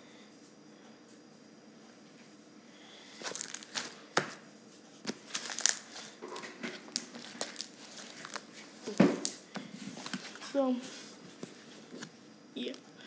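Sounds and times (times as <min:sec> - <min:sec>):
slime crackles and pops: 0:05.1 - 0:06.0, 0:06.9 - 0:09.4.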